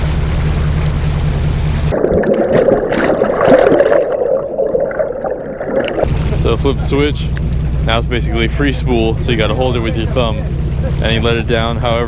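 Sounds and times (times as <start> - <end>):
boat engine hum: 0.0 - 12.0
underwater gurgling water: 1.9 - 6.4.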